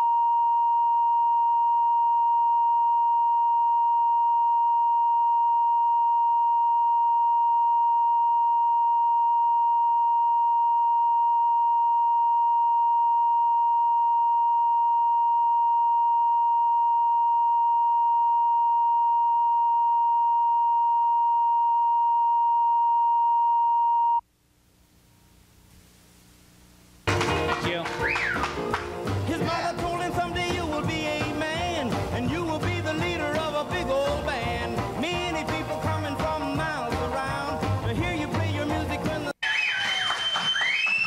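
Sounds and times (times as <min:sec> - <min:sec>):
faint tape hiss: 0:24.0 - 0:39.4.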